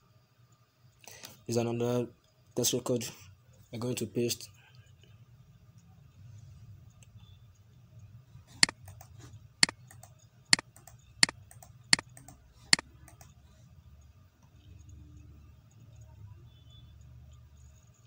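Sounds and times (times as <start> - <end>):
faint low hum: 0.0 - 18.0
computer mouse clicking: 8.6 - 13.4.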